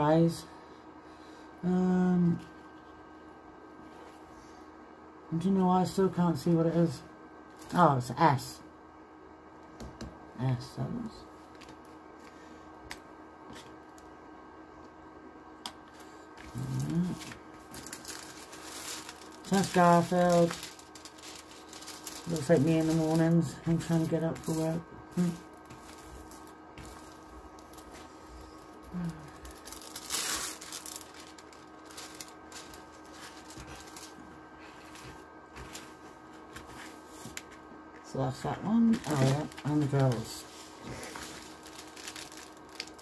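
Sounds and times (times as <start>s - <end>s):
faint hum of shoe dryer: 0.0s - 43.0s
plastic packaging rustling: 15.8s - 37.6s, 38.5s - 43.0s
person humming: 16.4s - 17.4s, 28.4s - 29.6s
plastic bags clicking: 16.6s - 24.8s, 29.0s - 34.2s, 38.8s - 43.0s.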